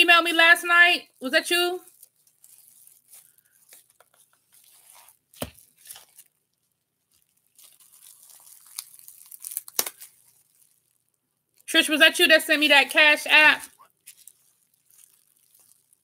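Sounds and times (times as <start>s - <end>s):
packaging tearing and crinkling: 1.8s - 6.4s, 7.1s - 11.1s, 13.7s - 16.0s.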